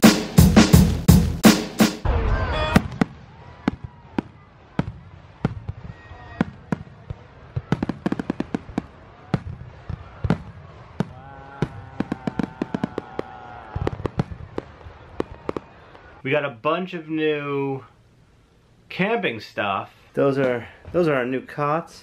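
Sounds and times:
fireworks bangs and crackles: 0:02.7 - 0:16.2.

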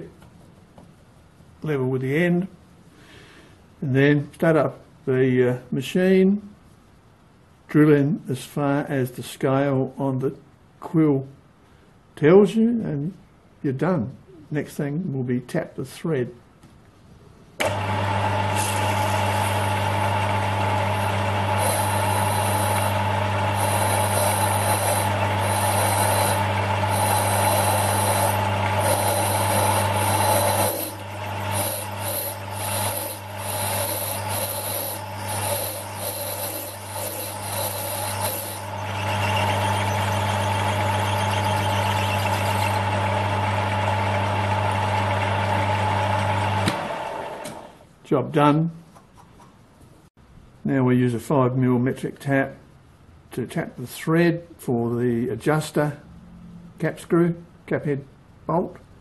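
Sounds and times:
lathe motor hum and whine: 0:17.6 - 0:47.8.

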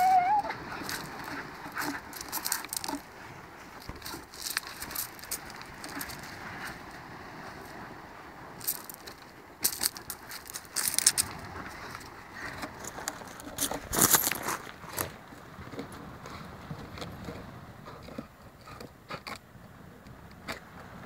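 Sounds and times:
pebbles rattling: 0:01.8 - 0:03.0, 0:04.0 - 0:06.3, 0:08.6 - 0:11.3, 0:13.6 - 0:14.7.

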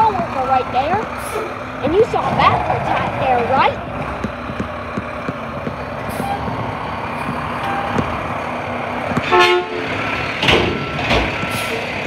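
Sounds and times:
diesel truck engine running: 0:00.0 - 0:12.0
horn toot: 0:09.2 - 0:10.0
reversing beeps: 0:10.6 - 0:11.9.

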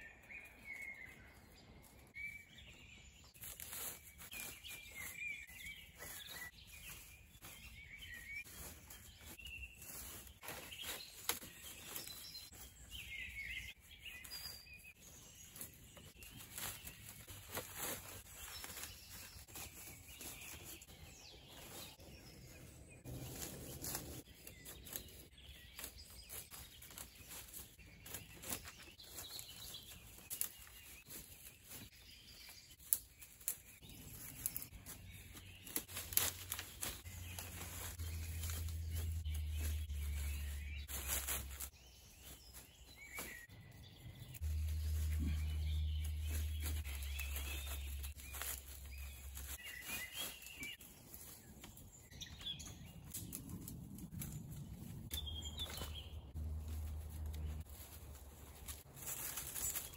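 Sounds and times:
small birds chirping: 0:00.0 - 0:59.9.

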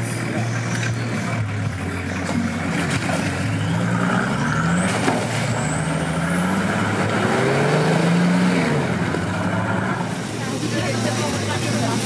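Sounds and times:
car engine revving: 0:00.0 - 0:12.0.

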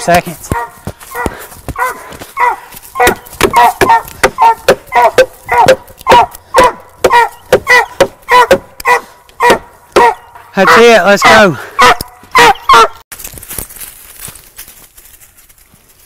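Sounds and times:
dog barking: 0:00.5 - 0:13.0.

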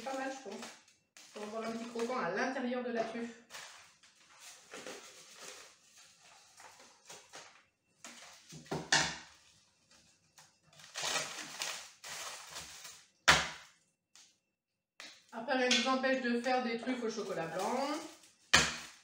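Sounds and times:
wrappers crinkling and rustling: 0:00.0 - 0:02.4, 0:03.4 - 0:08.7, 0:09.3 - 0:13.2, 0:17.0 - 0:19.0.

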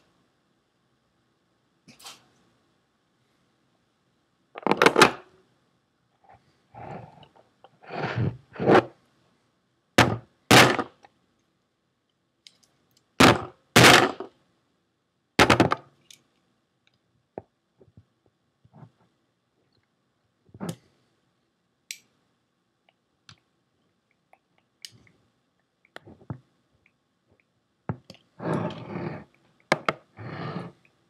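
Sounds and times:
metal casing thunking on wooden desk: 0:15.4 - 0:15.8.

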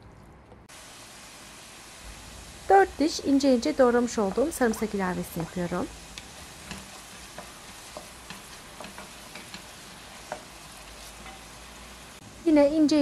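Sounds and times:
onion and garlic sizzling in oil: 0:00.7 - 0:13.0
wooden spoon scraping a pot: 0:04.2 - 0:12.0.

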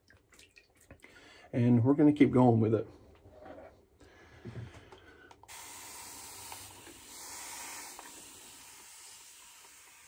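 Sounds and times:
shaving brush lathering face: 0:05.5 - 0:10.0.

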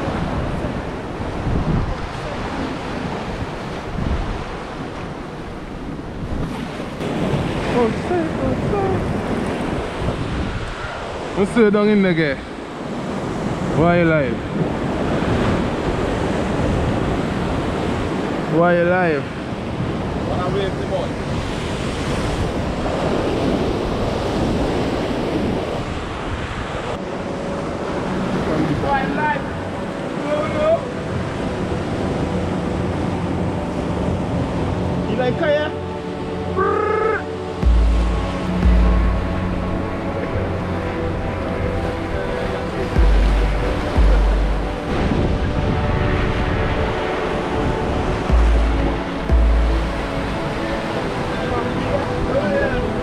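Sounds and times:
wind buffeting microphone: 0:00.0 - 0:11.4, 0:19.3 - 0:28.8, 0:37.4 - 0:53.0
sea waves breaking on rocks: 0:00.0 - 0:34.9
surf breaking against rocks: 0:06.3 - 0:10.3.

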